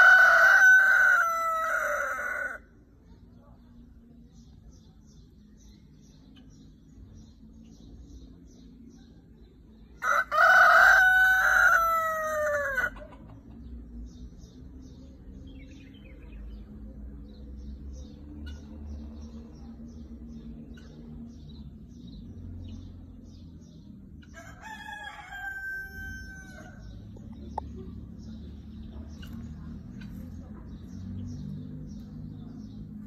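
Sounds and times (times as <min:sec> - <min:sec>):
rooster crowing: 0:00.0 - 0:02.6, 0:10.0 - 0:13.0, 0:24.4 - 0:26.8.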